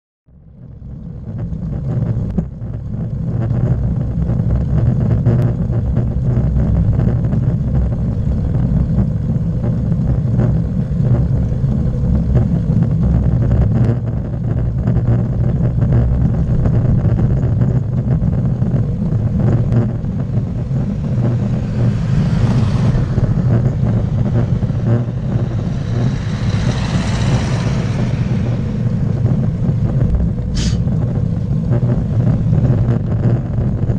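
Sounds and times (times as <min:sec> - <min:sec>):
wind and road rumble: 0:00.3 - 0:33.9
motor vehicle passing: 0:20.0 - 0:31.6.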